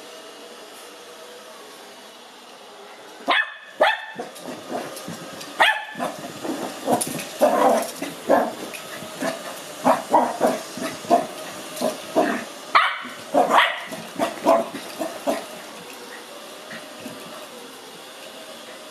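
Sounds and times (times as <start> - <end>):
robot vacuum humming: 0.0 - 18.9
puppy barking: 3.3 - 4.9, 5.6 - 15.6.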